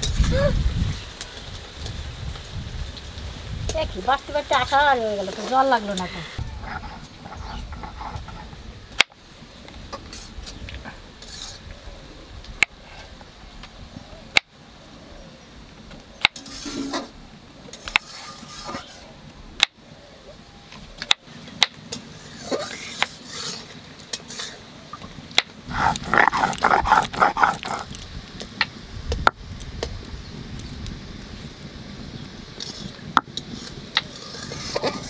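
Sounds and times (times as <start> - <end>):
rapid animal calls: 25.7 - 27.9.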